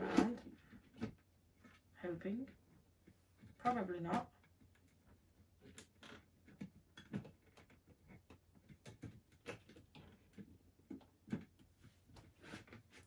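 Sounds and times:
plastic clicks and knocks: 0:05.6 - 0:11.7.

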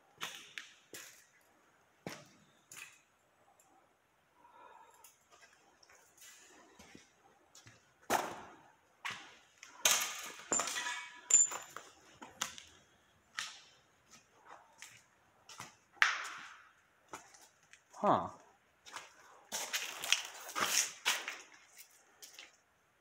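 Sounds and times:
footsteps on gritty concrete: 0:18.8 - 0:22.6.

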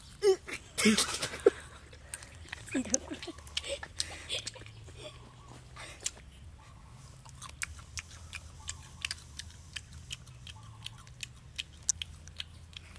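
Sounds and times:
low steady hum: 0:00.0 - 0:12.9
crisp chewing crunches: 0:01.9 - 0:05.0, 0:07.0 - 0:12.9.

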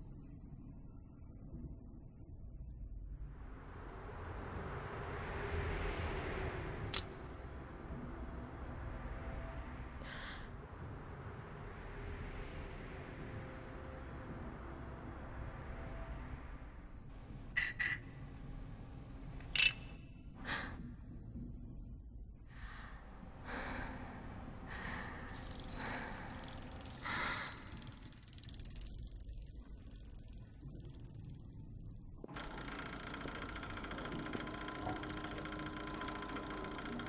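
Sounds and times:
low steady hum: 0:00.0 - 0:32.6
soft breathy puffs: 0:22.5 - 0:28.2
small mechanism clicks: 0:25.3 - 0:37.0.

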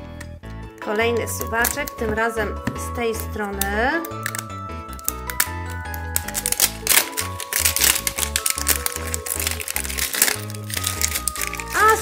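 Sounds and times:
paper wrapping crinkling and tearing: 0:04.0 - 0:12.0.

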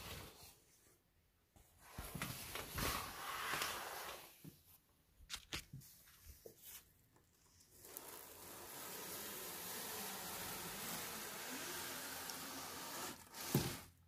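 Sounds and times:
window blinds rustling: 0:02.0 - 0:04.4, 0:07.6 - 0:14.0
window blinds clicking: 0:07.7 - 0:14.0.

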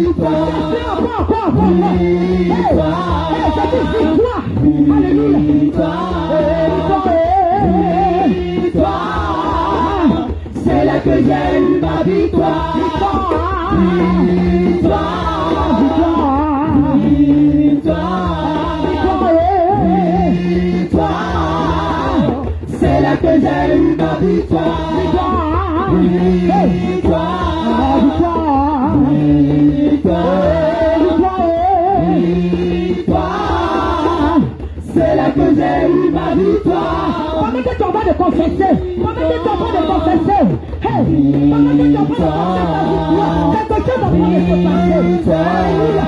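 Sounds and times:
women singing gospel song: 0:00.0 - 0:46.0.

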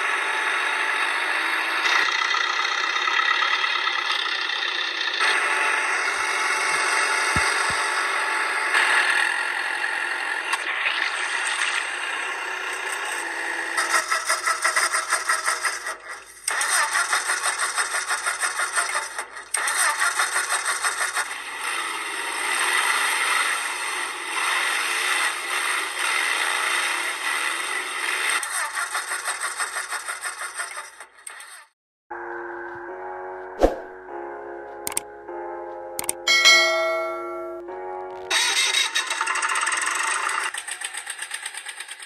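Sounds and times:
small motor rattling: 0:00.8 - 0:07.8, 0:12.4 - 0:31.7, 0:38.3 - 0:42.0.

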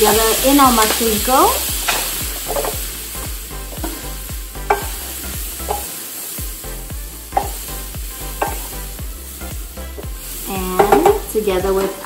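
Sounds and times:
mushrooms sizzling in butter: 0:00.0 - 0:12.0
spatula knocking against pan: 0:04.6 - 0:05.0, 0:07.4 - 0:07.7, 0:08.4 - 0:08.7, 0:10.8 - 0:11.3.

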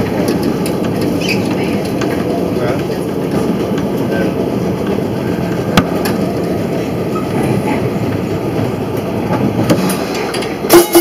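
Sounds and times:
streetcar wheels rumbling on rail: 0:00.0 - 0:11.0.

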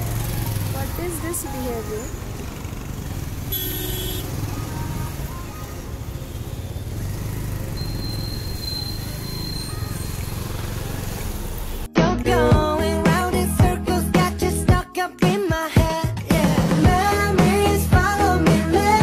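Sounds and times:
motorcycle engine and road rumble: 0:00.0 - 0:11.9
pop music: 0:11.9 - 0:19.0.

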